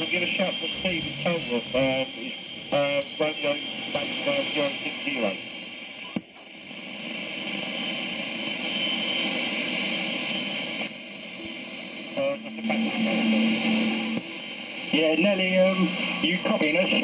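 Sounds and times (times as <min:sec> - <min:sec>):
steady low tone: 0:00.0 - 0:05.6, 0:10.9 - 0:15.2
faint broken radio voices: 0:00.0 - 0:17.0
radio static hiss: 0:00.0 - 0:17.0.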